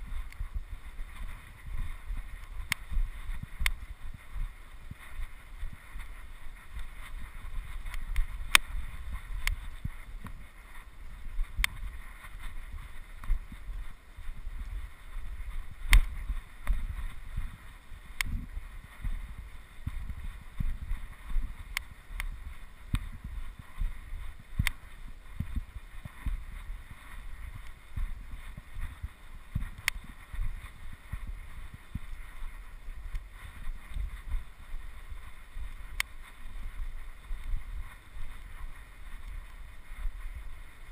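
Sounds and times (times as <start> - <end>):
wind buffeting microphone: 0.0 - 40.9
sharp clicks: 15.9 - 16.8.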